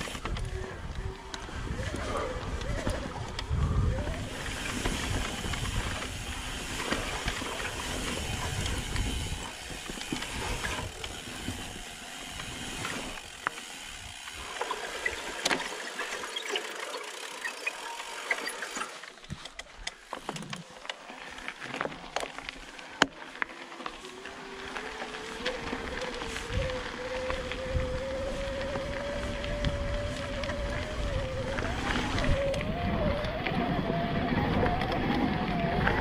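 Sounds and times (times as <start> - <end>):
wind buffeting microphone: 0.0 - 13.1, 25.6 - 36.0
tyres crunching over gravel: 0.0 - 15.8, 18.6 - 32.7
bike rattling: 0.0 - 36.0.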